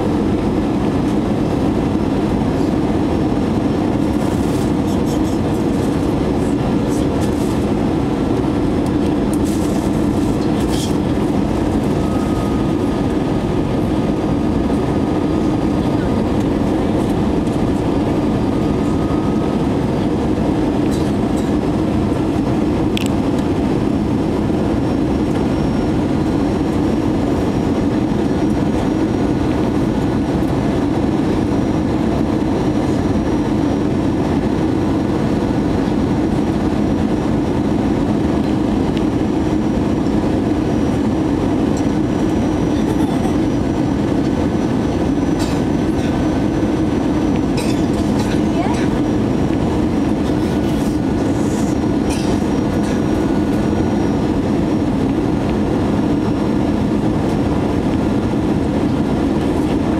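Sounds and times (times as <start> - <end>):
jet engine and airflow rumble: 0.0 - 59.9.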